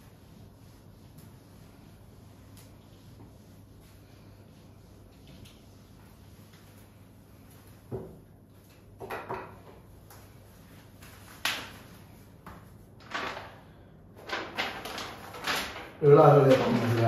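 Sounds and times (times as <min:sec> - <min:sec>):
paper rustling: 0:14.2 - 0:17.0.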